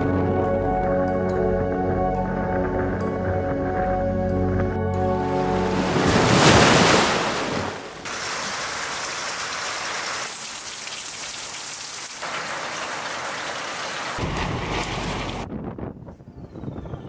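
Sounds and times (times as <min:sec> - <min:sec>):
steady rain falling: 0:08.0 - 0:15.4.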